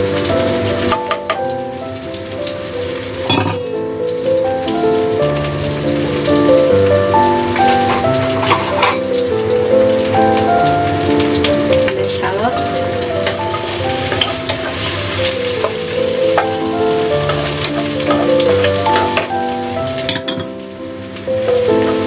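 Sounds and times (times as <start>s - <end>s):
garlic sizzling in hot oil: 0.0s - 22.0s
soft background music: 0.0s - 22.0s
wooden spatula scraping a pan: 7.7s - 9.1s.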